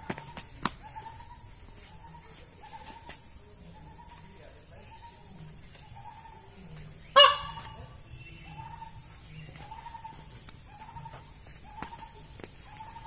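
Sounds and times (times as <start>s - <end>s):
peafowl harsh call: 7.0s - 13.0s.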